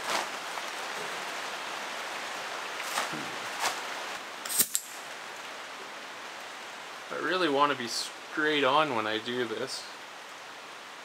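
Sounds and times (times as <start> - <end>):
heavy rain hissing: 0.0 - 11.0
sharp high-pitched hiss: 4.4 - 5.2.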